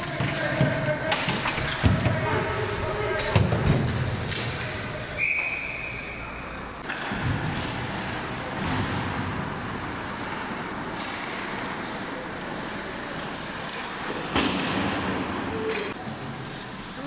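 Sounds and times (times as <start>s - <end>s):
ice rink hall noise: 0.0s - 17.0s
referee's whistle: 5.1s - 6.5s.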